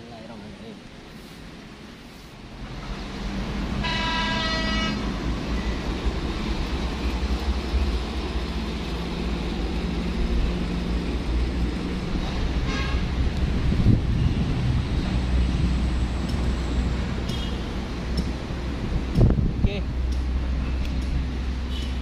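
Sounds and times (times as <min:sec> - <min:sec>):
heavy vehicle engine rumbling: 0:00.1 - 0:22.0
vehicle horn: 0:03.8 - 0:05.2, 0:12.6 - 0:13.2.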